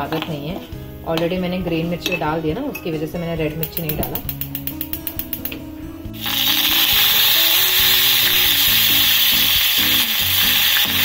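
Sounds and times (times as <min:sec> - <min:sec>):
leaves sizzling in hot oil: 0:06.2 - 0:11.0.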